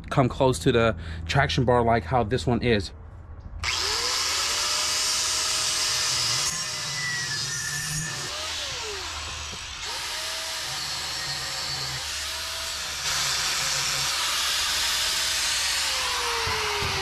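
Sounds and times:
angle grinder cutting steel: 3.6s - 17.0s.

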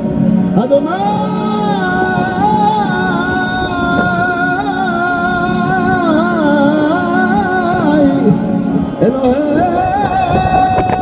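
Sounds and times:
man singing into microphone: 0.4s - 11.0s.

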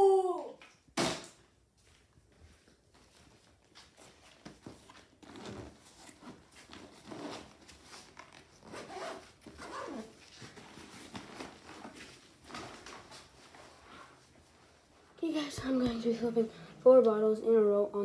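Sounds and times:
zipper being pulled: 5.2s - 10.2s.

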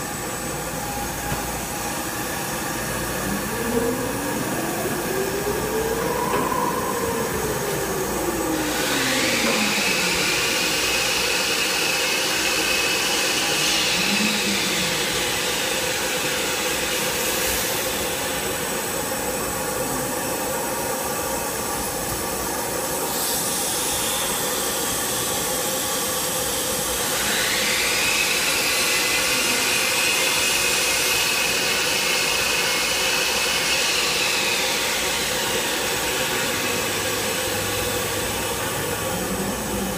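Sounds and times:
spindle whine rising: 0.0s - 22.3s, 33.3s - 39.9s
cnc router running: 0.0s - 39.9s.

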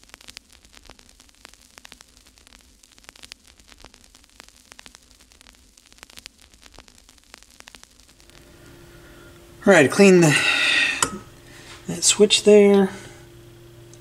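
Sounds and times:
crackling static: 0.0s - 14.0s
steady hiss: 0.0s - 14.0s
low hum: 8.2s - 14.0s.

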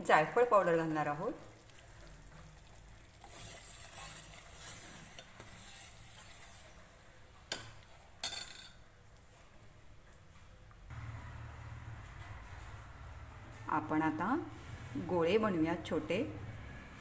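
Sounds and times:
ladle stirring syrup in a pan: 0.9s - 8.4s.

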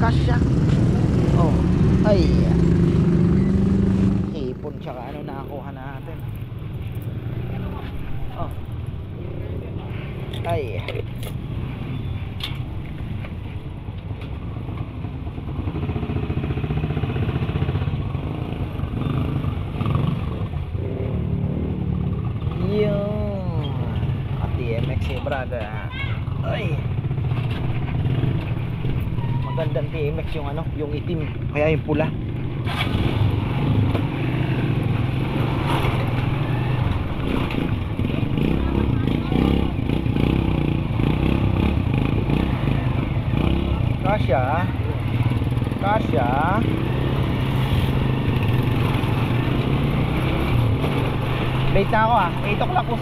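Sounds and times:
motorcycle engine running: 0.0s - 6.4s, 31.5s - 53.0s.

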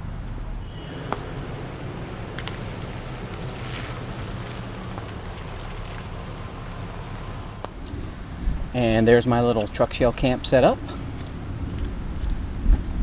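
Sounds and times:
low engine rumble: 0.0s - 13.0s
tyres hissing on wet road: 0.6s - 8.1s.

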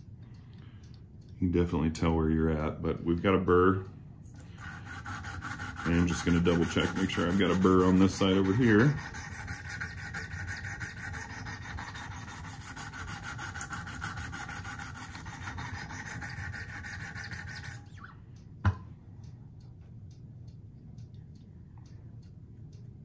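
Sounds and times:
sharpening stone rubbing knife edge: 4.6s - 18.1s.

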